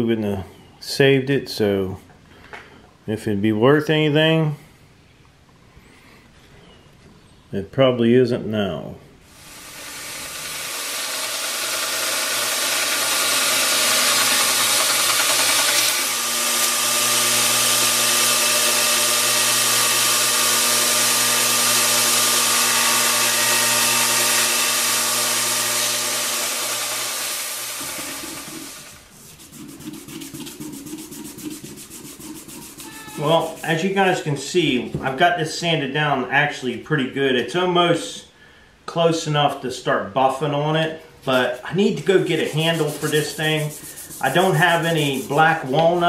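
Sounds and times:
belt grinder grinding steel: 9.4s - 29.1s
sandpaper rubbing on metal blade: 28.7s - 34.0s, 41.3s - 46.0s.

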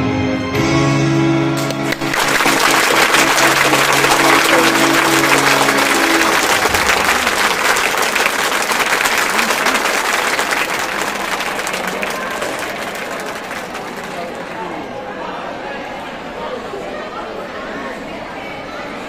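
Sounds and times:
audience applauding: 1.6s - 14.7s
held music chord: 1.9s - 7.7s.

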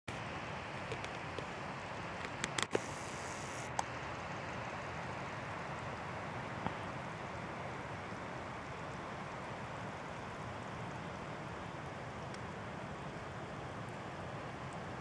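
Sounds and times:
sharp clicks: 2.2s - 3.0s.

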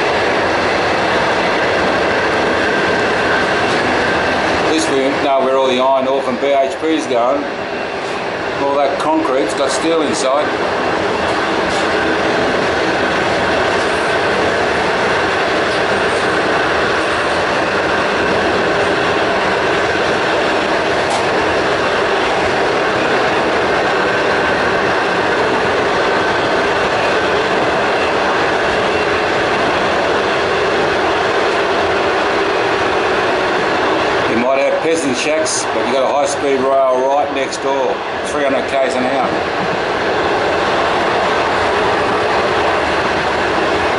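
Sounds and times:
train wheels on rails: 0.0s - 43.9s.

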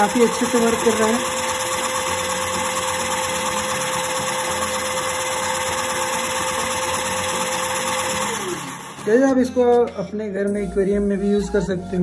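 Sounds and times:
small motor driving air compressor: 0.0s - 9.4s.

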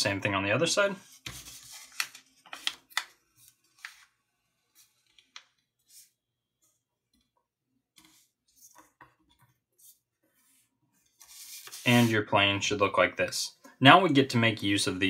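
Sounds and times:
paper rustling and crinkling: 1.1s - 6.1s, 11.0s - 12.1s.

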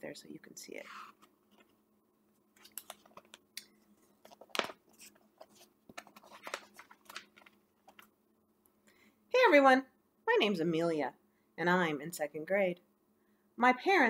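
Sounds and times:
book pages rustling: 2.5s - 8.1s.

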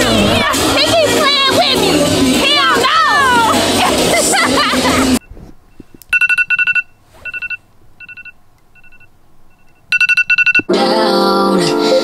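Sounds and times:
rapid electronic alarm beeps: 5.2s - 10.7s.

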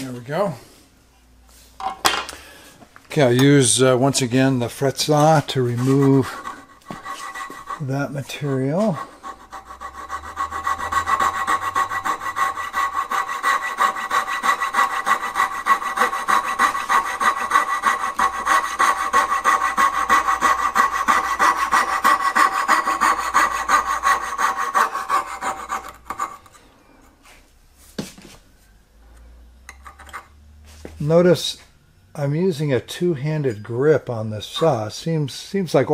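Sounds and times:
fret saw cutting wood: 4.4s - 26.4s.

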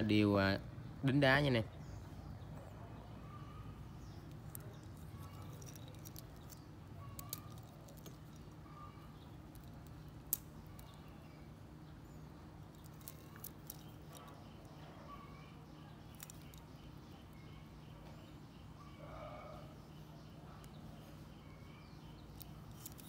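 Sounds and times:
faint chirps: 0.8s - 23.0s
metal watch clicking: 4.1s - 8.6s, 9.2s - 11.1s, 12.7s - 14.6s, 16.1s - 16.9s, 22.2s - 23.0s.

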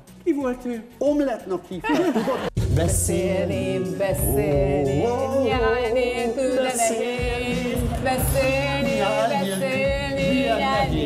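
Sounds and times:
backing music: 0.0s - 11.0s
woman and man singing: 2.6s - 11.0s.

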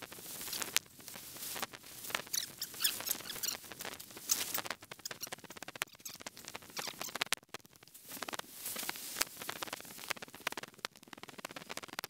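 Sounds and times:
footsteps on gravel and leaves: 8.0s - 9.4s.

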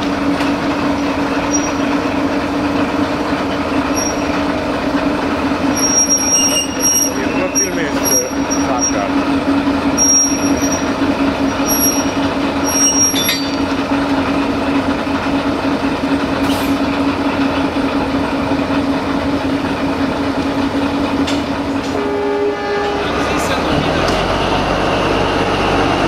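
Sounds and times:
locomotive engine hum: 0.0s - 26.0s
high-pitched wheel squeals: 1.4s - 2.0s, 3.9s - 4.4s, 5.7s - 9.2s, 9.9s - 13.8s.

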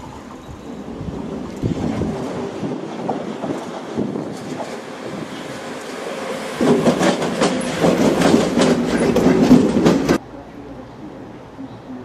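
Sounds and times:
electric locomotive rolling past: 0.0s - 11.8s
train wheels clacking over rail joints: 1.2s - 10.2s.

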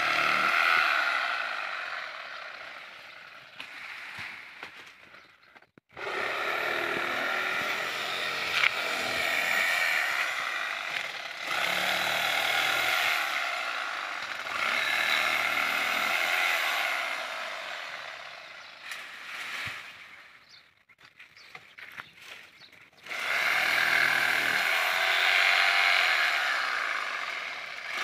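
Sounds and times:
chainsaw cutting wood: 0.0s - 20.6s, 23.0s - 28.0s.

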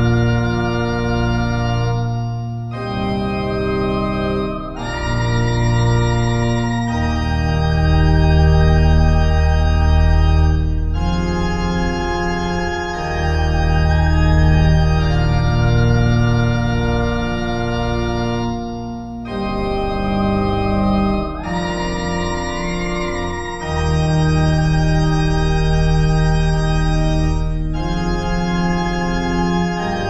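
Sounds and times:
sustained synthesizer chords: 0.0s - 30.0s.

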